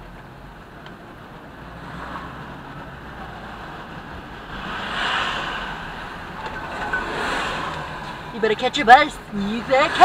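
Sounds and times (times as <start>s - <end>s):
road noise inside moving car: 0.0s - 10.0s.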